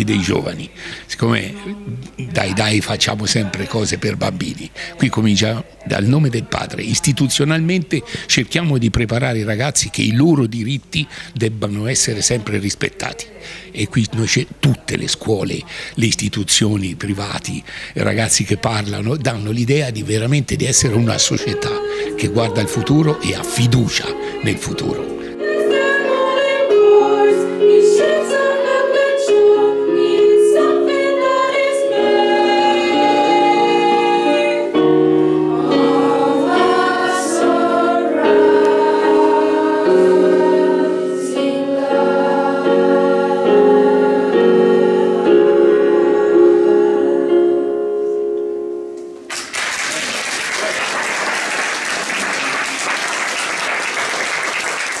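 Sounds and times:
youth choir singing: 20.8s - 47.5s
electronic keyboard: 20.8s - 49.3s
audience applauding: 49.3s - 55.0s.

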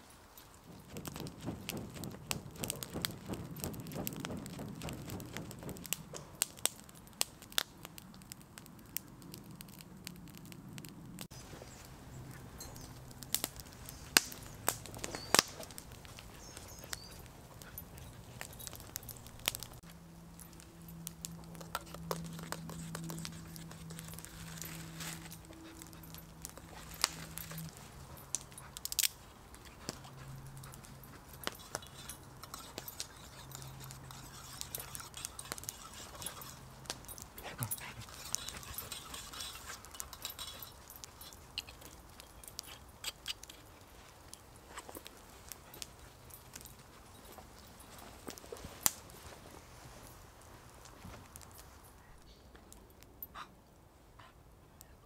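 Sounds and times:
campfire crackling and popping: 0.0s - 53.9s
spoon stirring in metal mug: 31.6s - 36.8s.

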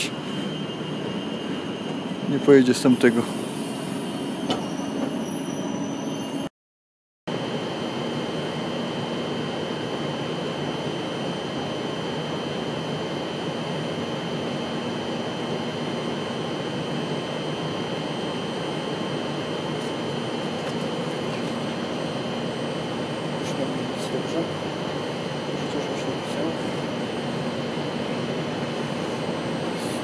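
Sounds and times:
train ventilation hum: 0.0s - 5.9s, 9.8s - 30.0s
thin high whine: 0.0s - 6.5s.

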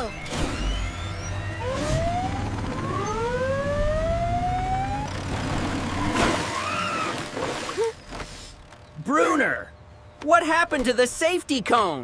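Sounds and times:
siren rising in pitch: 0.0s - 7.1s.

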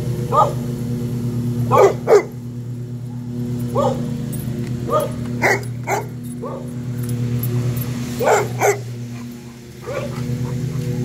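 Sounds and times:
lawnmower engine hum: 0.0s - 11.0s
dog barking: 0.3s - 0.6s, 1.7s - 2.4s, 3.7s - 4.1s, 4.9s - 6.8s, 8.2s - 8.9s, 9.8s - 10.6s.

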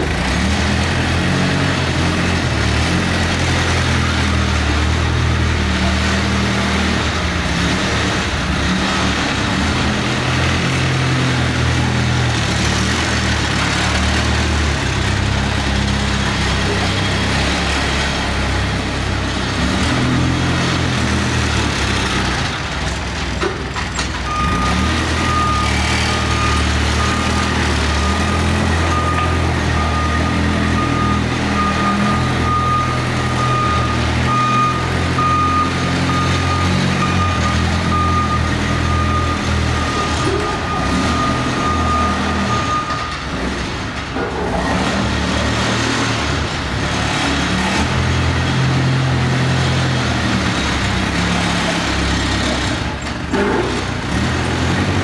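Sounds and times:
diesel engine running: 0.0s - 55.0s
back-up alarm beeping: 24.3s - 43.3s.

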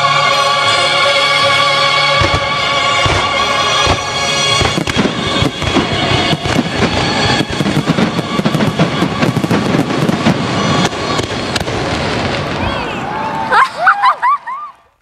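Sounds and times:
fireworks bursting: 0.1s - 14.0s.

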